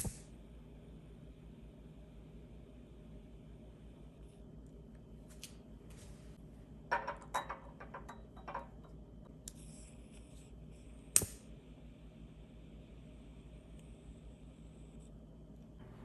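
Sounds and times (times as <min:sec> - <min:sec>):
gas hissing: 0:00.0 - 0:00.6
glass clinks and knocks: 0:06.9 - 0:08.9
lighter clicking: 0:11.1 - 0:11.5.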